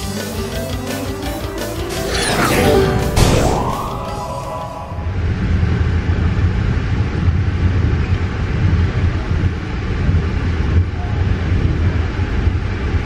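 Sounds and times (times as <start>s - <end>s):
passenger train rumbling inside coach: 4.9s - 13.0s.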